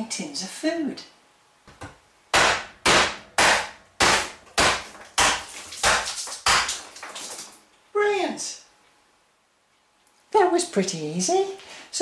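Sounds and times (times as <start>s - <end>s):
hammer bashing metal tin: 2.4s - 7.4s.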